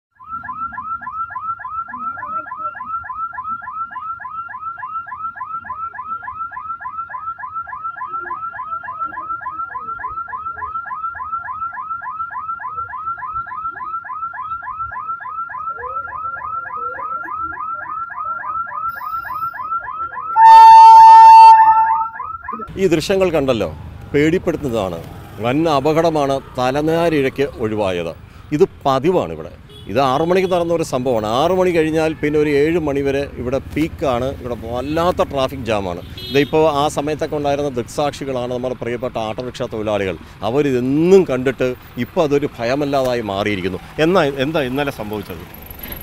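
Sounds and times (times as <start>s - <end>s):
level crossing warning alarm chirping: 0.2s - 22.7s
train horn: 20.4s - 22.2s.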